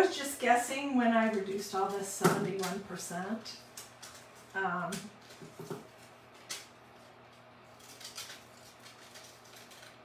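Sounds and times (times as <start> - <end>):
scissors snipping paper: 7.3 - 10.0.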